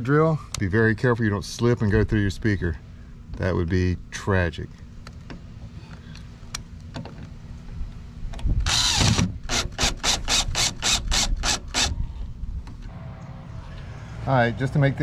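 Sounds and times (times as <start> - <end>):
cordless drill driving a screw: 8.6 - 12.0.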